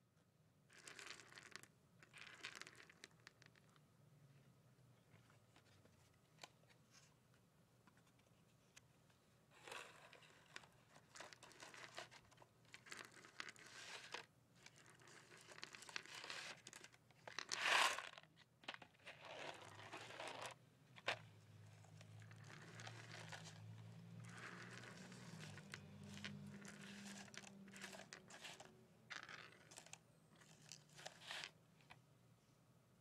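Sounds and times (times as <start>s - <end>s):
cardboard candy box crinkling: 9.6s - 31.6s
candies spilling on a table: 24.2s - 31.5s.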